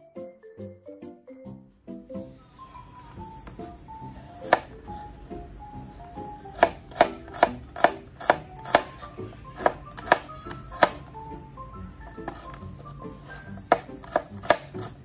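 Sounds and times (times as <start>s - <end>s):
knife chopping on cutting board: 3.4s - 4.8s, 6.2s - 11.1s, 13.3s - 15.0s.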